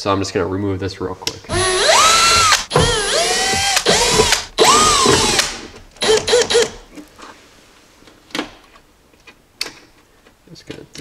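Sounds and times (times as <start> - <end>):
cordless drill motor whining: 1.5 - 6.8.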